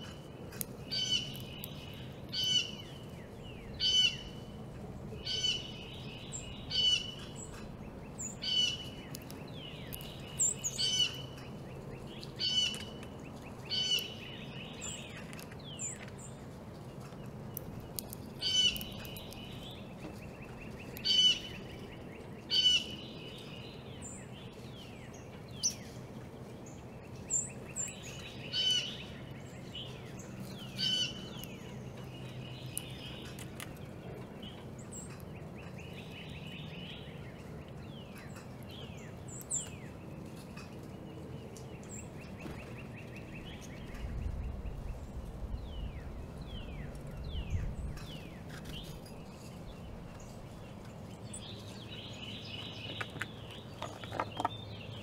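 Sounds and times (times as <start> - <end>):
steady low hum: 0.0 - 53.8
songbirds chirping: 0.0 - 55.0
low rumble: 43.4 - 50.7.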